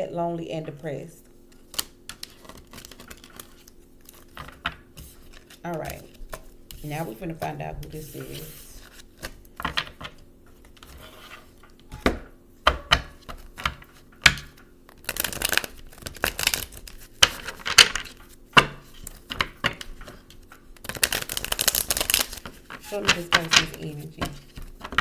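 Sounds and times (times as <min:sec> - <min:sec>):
cards shuffling and rustling: 0:01.5 - 0:11.9, 0:13.2 - 0:25.0
cards tapping and clicking: 0:01.7 - 0:07.5, 0:12.0 - 0:25.0.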